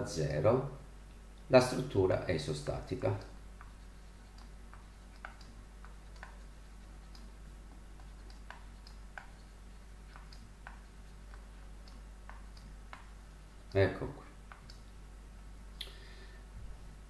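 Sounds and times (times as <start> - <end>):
low steady hum: 0.0 - 17.0
stylus tapping on tablet: 4.4 - 7.3, 8.0 - 9.5, 10.1 - 13.2.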